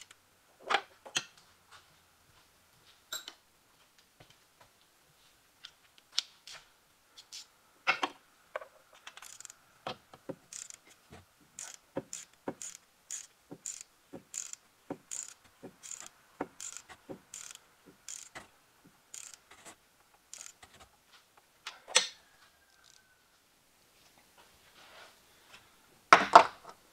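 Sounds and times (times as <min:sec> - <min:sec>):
ratchet wrench clicking: 0:09.1 - 0:09.6, 0:10.4 - 0:11.0, 0:11.6 - 0:18.4, 0:19.1 - 0:20.8.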